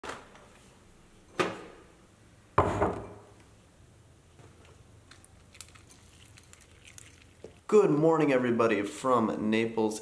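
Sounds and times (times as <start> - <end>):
cereal flakes poured into bowl: 5.2 - 7.6.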